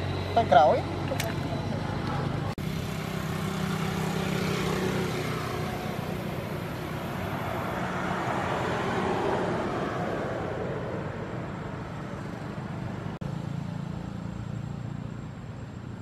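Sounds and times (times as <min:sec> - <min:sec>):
vehicle engine humming: 0:00.0 - 0:16.0.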